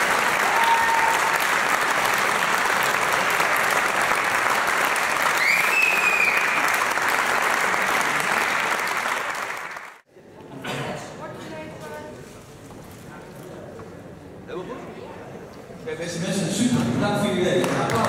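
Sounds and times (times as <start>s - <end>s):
audience applauding: 0.0s - 10.0s, 17.5s - 18.0s.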